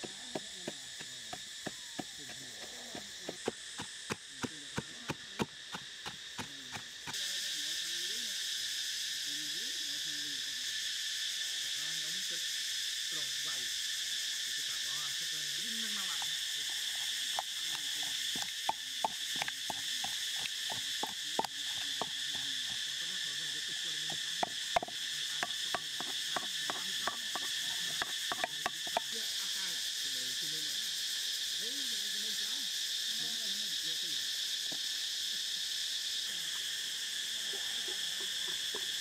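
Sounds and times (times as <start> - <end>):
wooden pestle pounding in mortar: 0.0 - 7.2, 16.7 - 22.8, 24.0 - 29.1
insects droning: 0.0 - 39.0.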